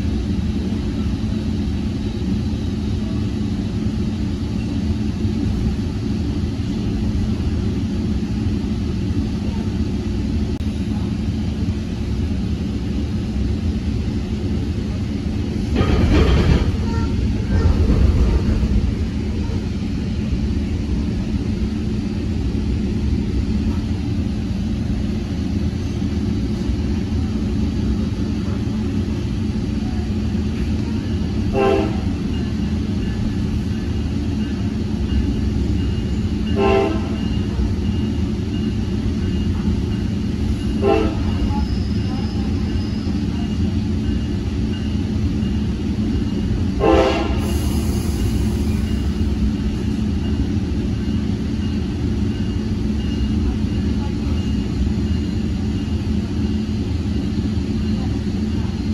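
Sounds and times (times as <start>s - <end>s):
train coach rumbling on track: 0.0s - 58.9s
train horn toots: 31.5s - 32.2s, 36.5s - 37.3s, 40.8s - 41.6s, 46.8s - 47.7s.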